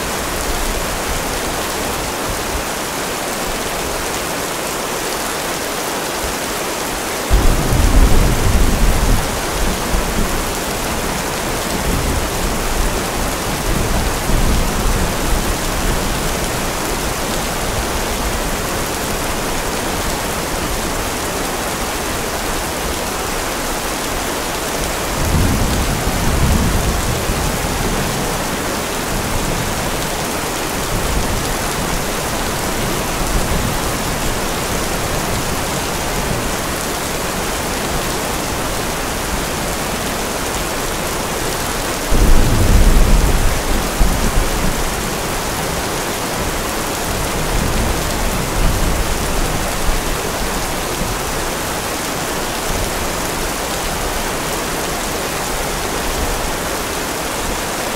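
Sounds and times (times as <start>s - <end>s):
steady rain: 0.0s - 57.9s
thunder rumbling: 7.3s - 19.2s, 25.0s - 37.2s, 42.0s - 45.8s.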